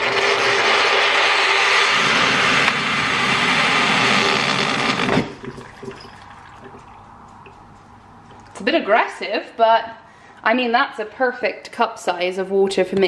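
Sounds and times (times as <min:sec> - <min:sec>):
hot water dispenser rushing: 0:00.0 - 0:07.2.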